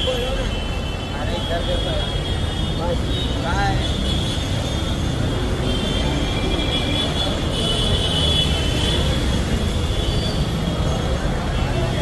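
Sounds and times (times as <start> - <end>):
city street traffic noise: 0.0 - 12.0.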